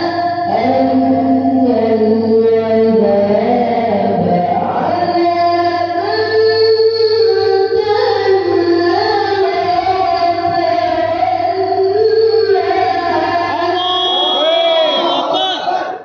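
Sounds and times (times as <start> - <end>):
boy reciting melodically: 0.0 - 16.0.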